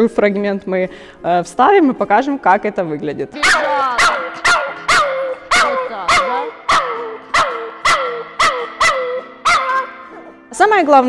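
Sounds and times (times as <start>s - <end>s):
small dog yapping: 3.4s - 10.3s.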